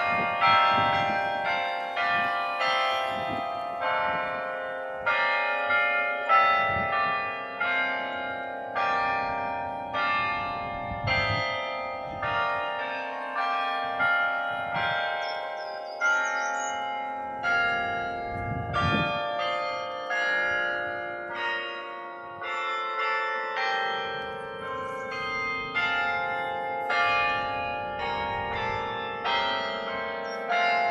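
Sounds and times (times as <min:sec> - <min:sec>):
carillon bells playing melody: 0:00.0 - 0:30.9.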